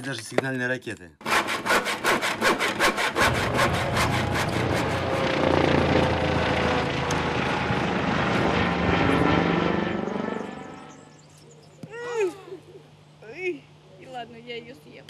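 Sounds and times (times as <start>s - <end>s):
hand saw on wood: 1.2s - 5.2s
helicopter flying overhead: 3.1s - 11.6s.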